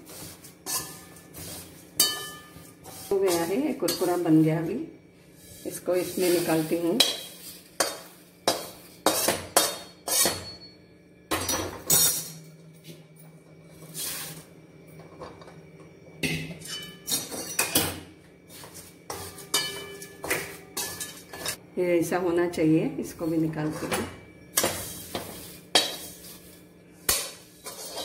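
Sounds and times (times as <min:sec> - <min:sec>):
metal spoon scraping steel pan: 0:00.1 - 0:04.5, 0:05.4 - 0:10.5, 0:18.5 - 0:21.6, 0:23.6 - 0:28.0.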